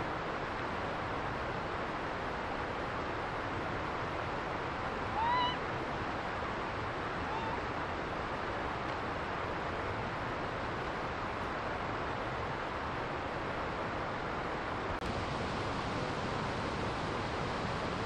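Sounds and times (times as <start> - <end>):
monkey coo calls: 5.1 - 5.6, 7.2 - 7.6
steady rushing hiss: 14.9 - 18.0.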